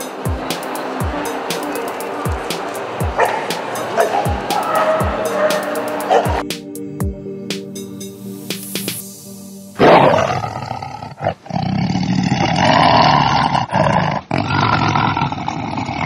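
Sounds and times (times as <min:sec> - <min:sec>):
outro music: 0:00.0 - 0:10.7
animal roar: 0:09.8 - 0:16.0.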